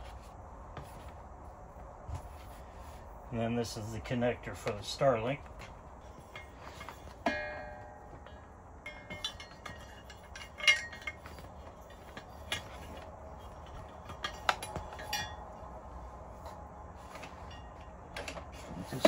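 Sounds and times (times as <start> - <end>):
metal parts clinking and knocking: 6.0 - 15.7.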